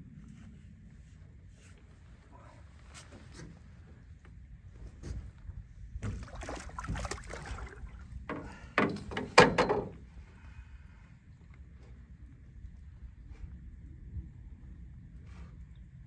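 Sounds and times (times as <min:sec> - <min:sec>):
fish thrashing in a net: 0:06.0 - 0:08.0
water knocking against boat: 0:06.0 - 0:10.1.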